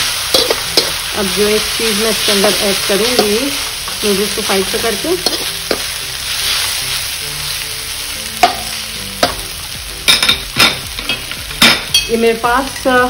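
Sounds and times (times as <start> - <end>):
metal spatula scraping wok: 0.0 - 7.2
food sizzling in a wok: 0.0 - 13.0.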